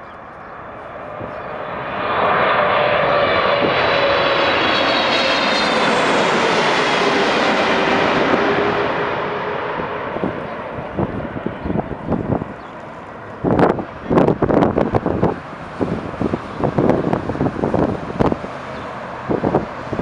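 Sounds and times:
jet airliner passing overhead: 0:00.0 - 0:20.0.

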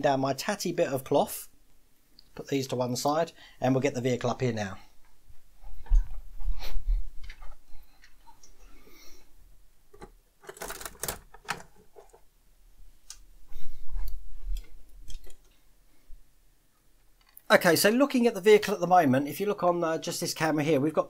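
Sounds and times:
objects clicking and rustling: 0:09.9 - 0:12.2.

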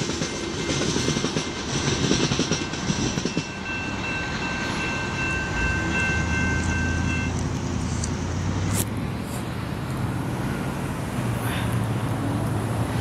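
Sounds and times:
level-crossing warning bell: 0:00.0 - 0:07.4.

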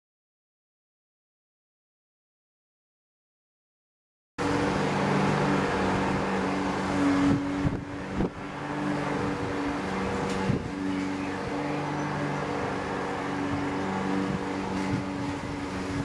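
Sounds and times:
motor humming: 0:04.4 - 0:16.0.

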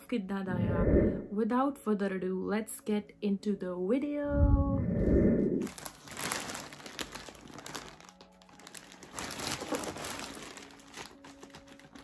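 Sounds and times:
plastic mailer package crinkling: 0:05.6 - 0:12.0.

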